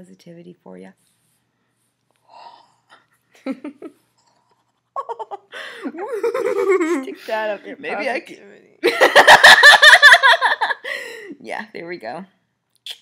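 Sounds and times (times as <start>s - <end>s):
women laughing: 5.0s - 7.2s, 8.8s - 11.0s
breathy gasp: 5.5s - 5.9s.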